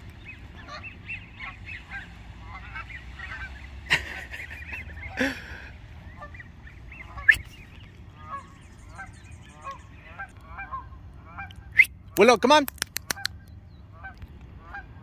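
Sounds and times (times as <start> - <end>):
geese honking: 0.0 - 15.0.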